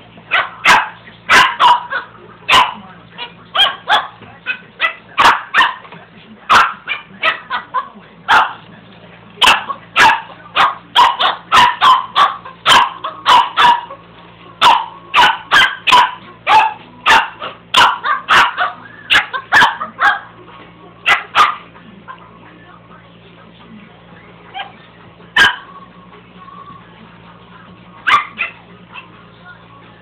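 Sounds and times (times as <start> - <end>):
small dog barking: 0.3 - 5.9, 6.5 - 8.6, 9.4 - 14.0, 14.6 - 20.3, 21.1 - 21.7, 25.4 - 25.7, 28.0 - 29.1.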